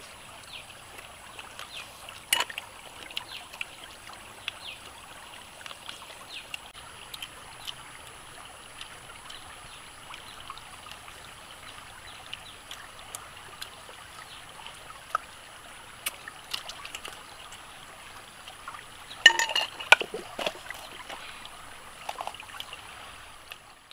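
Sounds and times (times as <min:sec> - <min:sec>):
stream trickling over rocks: 0:00.0 - 0:23.9
small clicks and snaps: 0:16.0 - 0:17.6.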